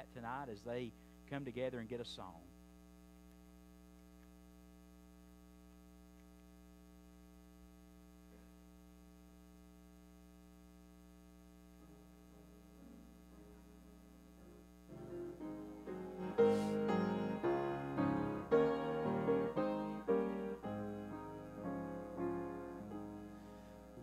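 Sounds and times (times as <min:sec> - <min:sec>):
electrical mains hum: 0:00.0 - 0:24.0
soft grand piano: 0:11.8 - 0:24.0.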